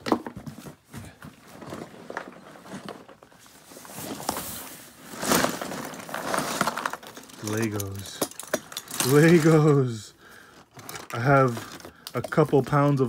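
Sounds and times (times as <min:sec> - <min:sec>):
cardboard flaps scraping and rustling: 0:00.1 - 0:07.7.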